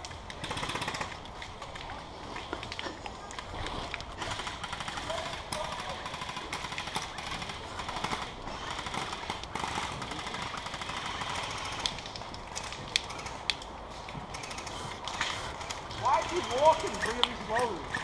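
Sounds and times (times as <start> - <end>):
airsoft guns firing clicks: 4.2 - 13.7.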